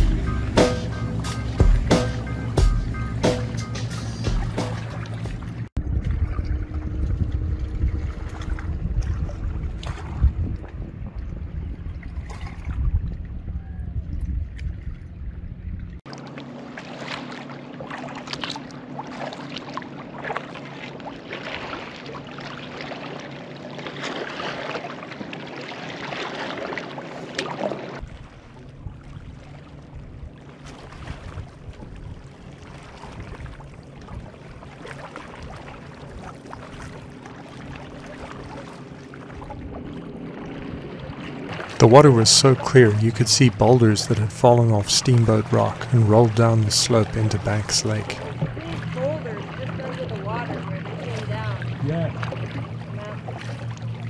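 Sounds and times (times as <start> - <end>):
paddle splashing in water: 0.0 - 15.0, 15.6 - 54.0
water running off paddle: 0.0 - 15.0, 30.6 - 54.0.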